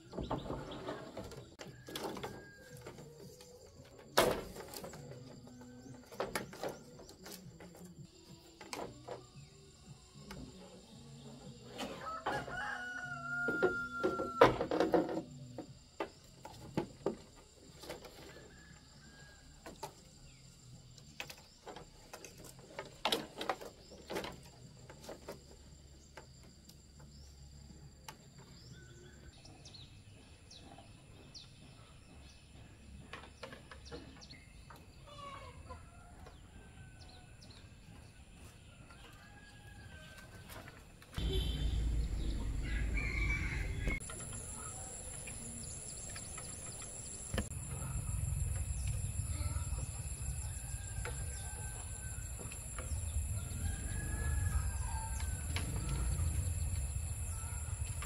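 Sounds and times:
chickens clucking: 32.9 - 36.5
loud low noise: 41.2 - 44.0.

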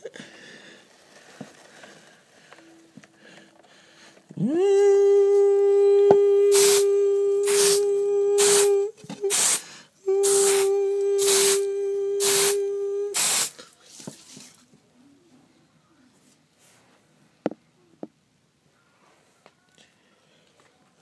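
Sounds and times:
spray bottle squirts: 6.5 - 6.9, 7.5 - 8.7, 9.3 - 9.6, 10.2 - 11.6, 12.2 - 12.6, 13.2 - 13.6.

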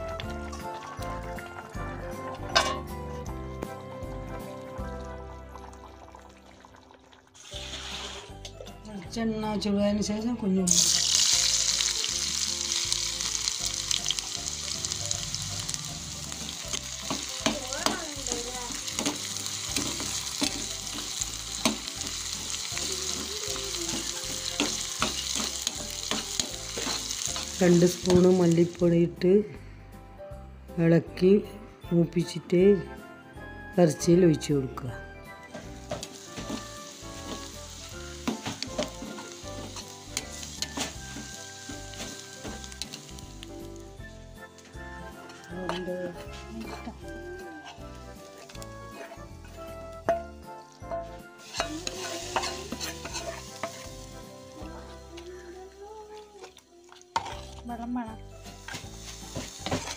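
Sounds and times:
shallots sizzling in oil: 0.0 - 5.4, 7.4 - 29.1, 35.3 - 59.9
wooden spatula scraping pan: 50.9 - 54.0.

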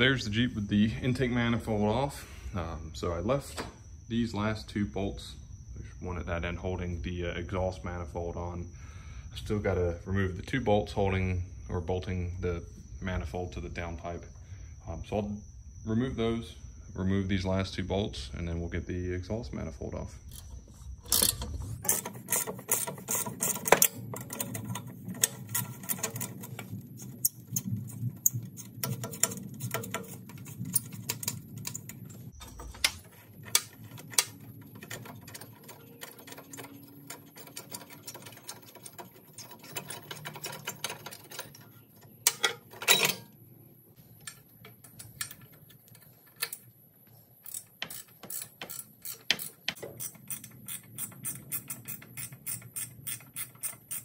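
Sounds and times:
metal tools clinking: 20.3 - 43.4
hand ratchet clicking: 21.1 - 43.2, 47.4 - 54.0.

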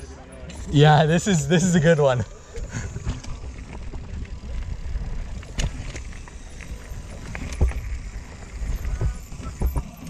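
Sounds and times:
bike tyres crunching over stones: 0.6 - 10.0
bike knocks and rattles: 2.6 - 10.0.

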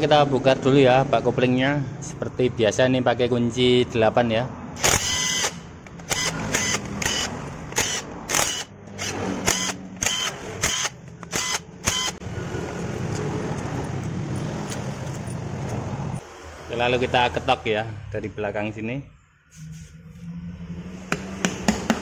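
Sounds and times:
impact driver bursts: 4.8 - 12.2.

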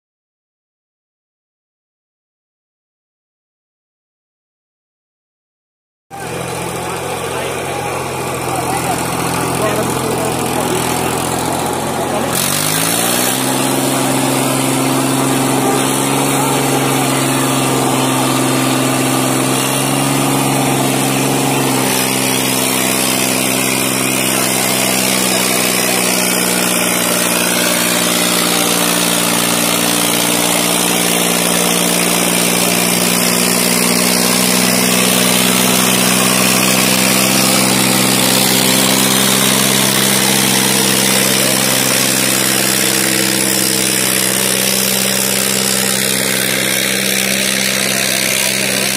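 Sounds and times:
tractor diesel engine under load: 6.1 - 48.9.

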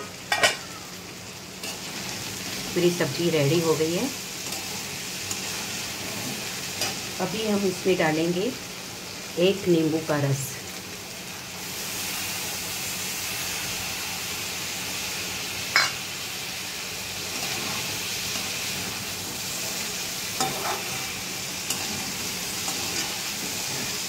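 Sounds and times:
vegetables sizzling in a pan: 0.0 - 24.0
metal spatula clinking on pan: 15.8 - 16.0.

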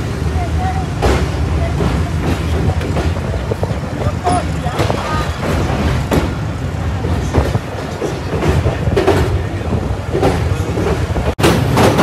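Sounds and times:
train rumble from inside coach: 0.0 - 12.0
wheels clacking over rail joints: 0.0 - 12.0.

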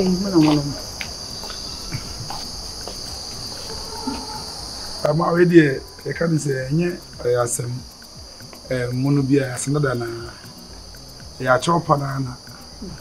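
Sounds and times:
person's voice: 0.0 - 0.8, 5.0 - 7.8, 8.6 - 10.6, 11.3 - 13.0
high-pitched insect chorus: 0.0 - 13.0.

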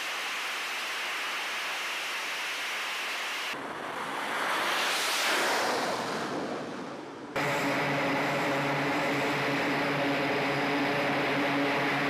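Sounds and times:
rushing wind-like noise: 0.0 - 12.0
turboprop engines droning: 3.6 - 12.0.

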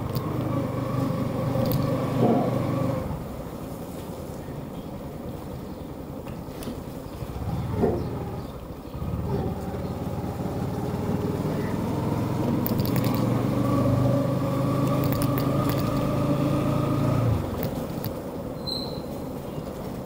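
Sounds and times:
motorcycle engine accelerating: 0.0 - 3.4, 7.2 - 18.2
sharp falling squeal: 18.6 - 19.1.

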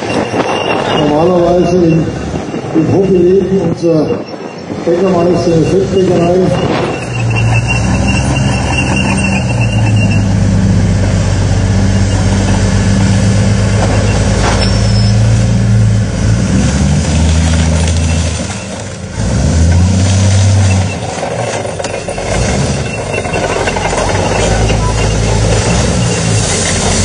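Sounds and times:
tank engine running: 0.0 - 27.0.

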